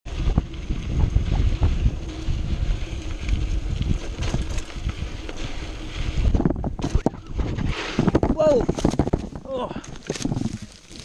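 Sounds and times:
wind buffeting microphone: 0.1 - 10.7
bike frame knocks and rattles: 4.0 - 5.0, 6.3 - 11.0.

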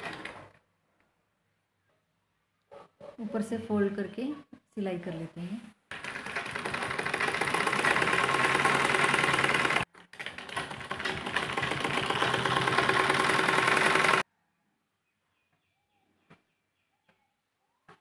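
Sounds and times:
sewing machine running fast: 5.9 - 14.2.

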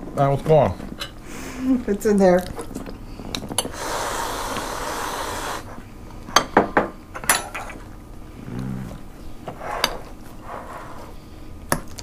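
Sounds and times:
cutlery clinking on plates: 7.2 - 7.8.

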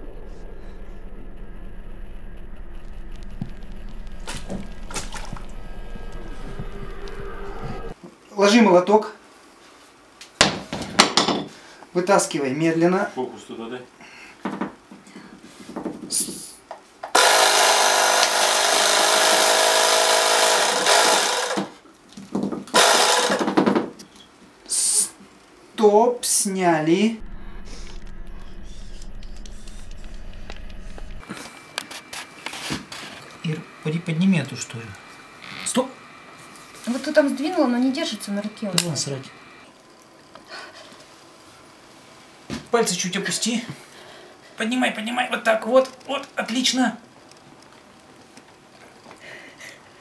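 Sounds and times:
steady low hum: 0.0 - 50.0
wet squelching: 4.2 - 5.6
small electric motor running: 17.1 - 21.8, 22.7 - 23.5, 29.0 - 39.7.

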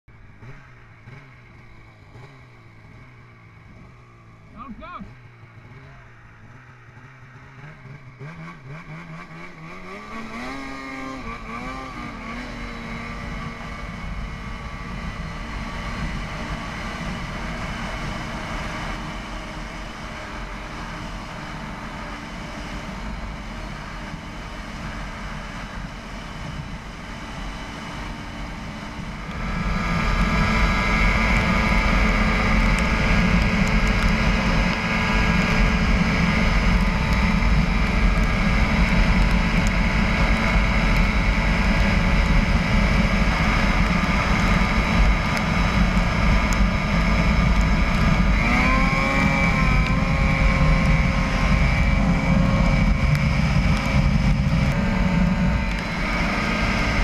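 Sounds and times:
snowmobile engine revving: 0.2 - 57.0.

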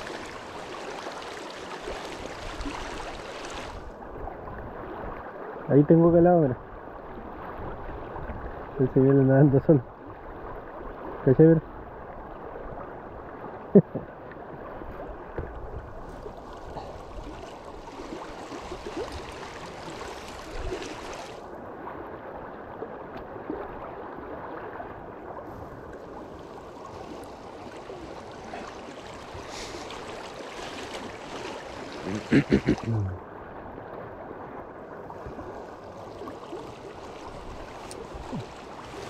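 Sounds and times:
river current rushing: 0.0 - 3.9, 16.1 - 21.6, 26.0 - 33.7, 35.1 - 39.0.

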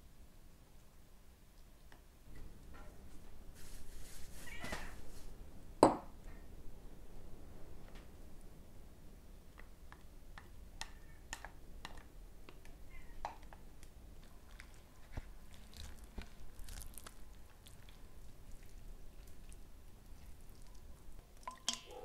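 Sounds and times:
marinade squelching on meat: 13.8 - 21.8.

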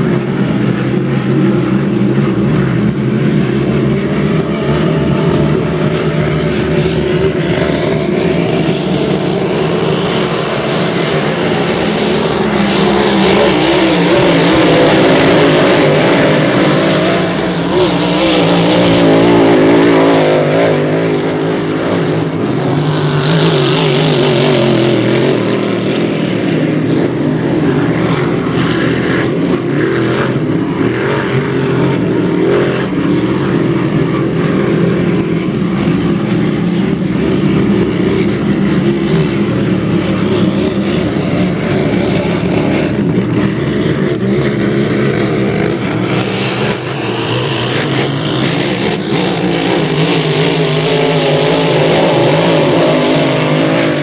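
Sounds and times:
racing boat engines drone: 0.0 - 54.0.

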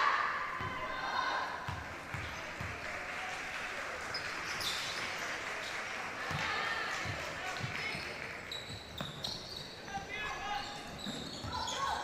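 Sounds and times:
basketball bouncing: 1.6 - 2.8, 6.2 - 8.0
shoe squeak: 4.5 - 5.0, 7.8 - 12.0.

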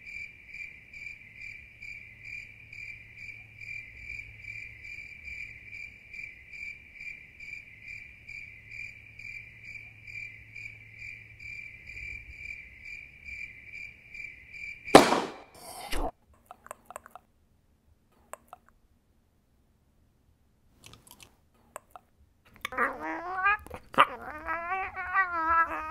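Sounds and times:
crickets chirping: 0.0 - 15.6, 22.7 - 25.9.

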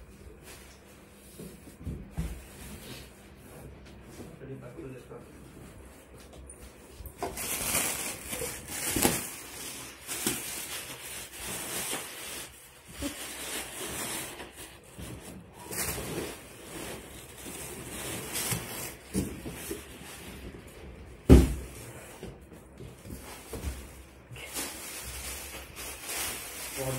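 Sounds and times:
plastic air pillows crinkling: 7.0 - 26.9.

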